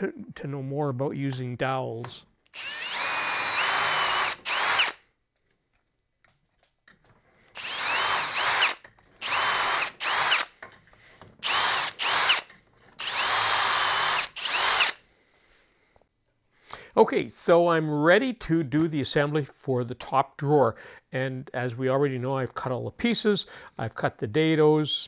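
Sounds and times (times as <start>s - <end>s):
electric drill whining: 2.5s - 5.1s, 7.5s - 10.7s, 11.4s - 15.0s.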